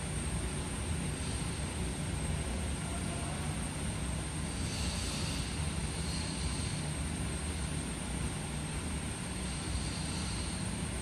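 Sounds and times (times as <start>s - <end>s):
low room hum: 0.0s - 11.0s.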